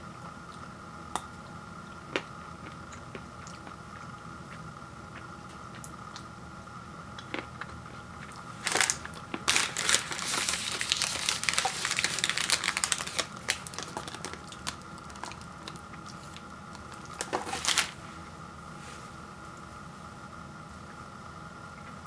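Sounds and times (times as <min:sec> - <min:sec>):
foil wrapper crinkling: 0:08.6 - 0:18.0.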